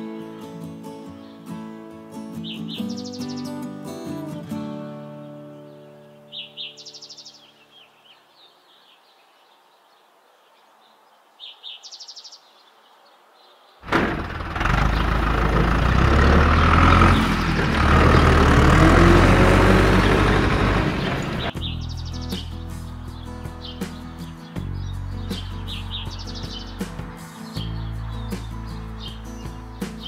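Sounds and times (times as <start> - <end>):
bird chirp: 2.3 - 14.0, 14.6 - 30.0
tractor engine running: 13.8 - 21.6.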